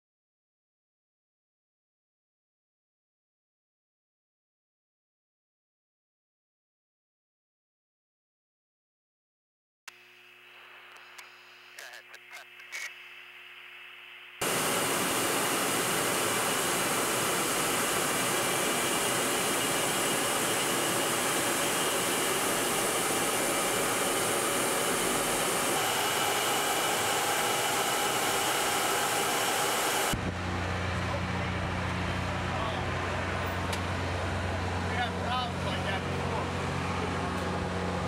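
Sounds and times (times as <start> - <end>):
steady low hum: 10.2 - 38.0
jet engine and airflow rushing: 14.4 - 38.0.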